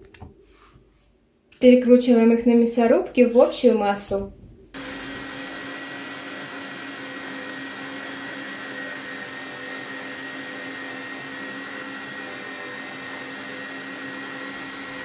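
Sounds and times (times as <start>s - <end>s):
electric meat grinder running: 4.8s - 15.0s.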